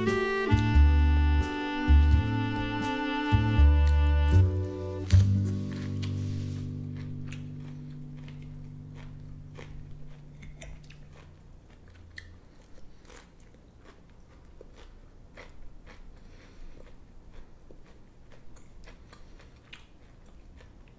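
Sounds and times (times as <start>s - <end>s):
chewing: 5.1s - 20.9s.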